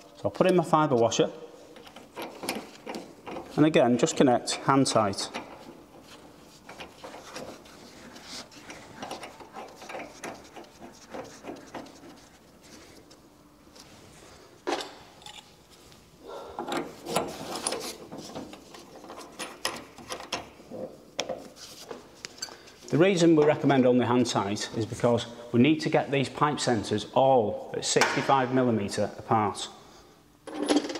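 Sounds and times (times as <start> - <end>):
metal fittings clicking and scraping: 1.8 - 13.2.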